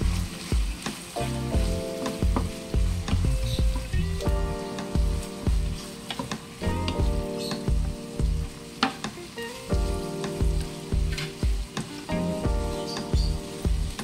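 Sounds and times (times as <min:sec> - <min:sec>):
background music with a beat: 0:00.0 - 0:14.0
food sizzling in a wok: 0:00.0 - 0:14.0
wooden spatula scraping a pan: 0:05.2 - 0:07.6, 0:10.6 - 0:12.2.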